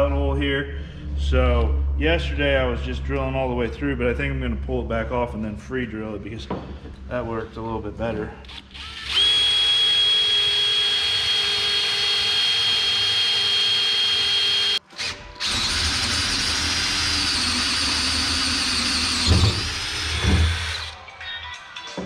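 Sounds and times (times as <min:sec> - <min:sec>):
cordless drill drilling metal: 0:08.4 - 0:21.0.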